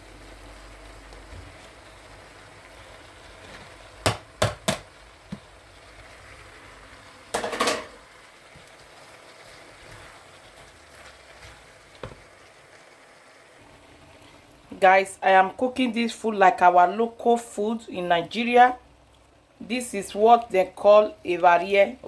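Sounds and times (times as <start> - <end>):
kitchenware knocking on frying pan: 4.0 - 4.9, 7.3 - 8.0
wooden spatula scraping: 8.5 - 12.3.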